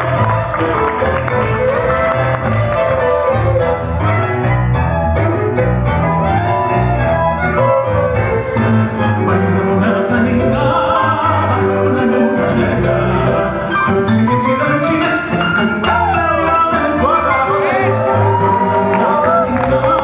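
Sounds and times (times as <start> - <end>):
bandoneon: 0.0 - 18.5
double bass walking bass: 0.0 - 20.0
piano: 0.0 - 20.0
violin: 0.0 - 20.0.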